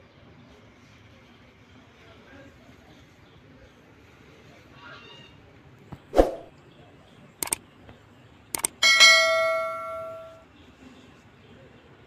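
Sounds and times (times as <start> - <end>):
button clicks: 8.6 - 8.8
bell chime: 8.8 - 10.4.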